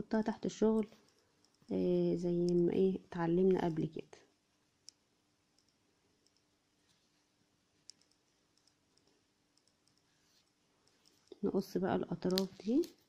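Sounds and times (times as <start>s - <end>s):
crochet hook clicking: 2.3s - 2.8s, 12.2s - 13.0s.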